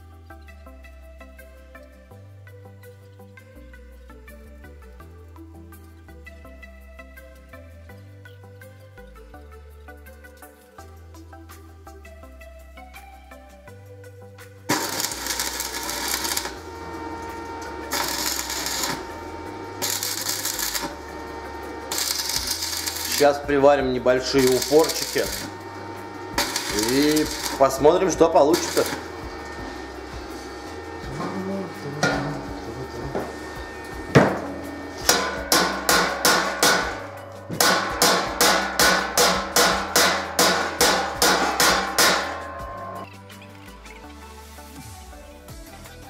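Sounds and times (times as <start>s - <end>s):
background music: 0.0s - 46.0s
arc welding crackling: 14.1s - 46.0s
hammer striking steel: 14.7s - 21.0s, 24.0s - 25.6s, 26.3s - 27.7s, 28.5s - 43.1s.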